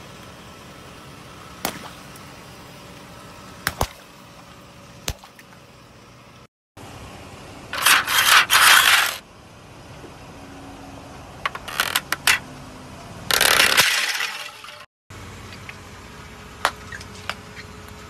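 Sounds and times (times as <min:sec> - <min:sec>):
car idling: 0:00.0 - 0:06.4.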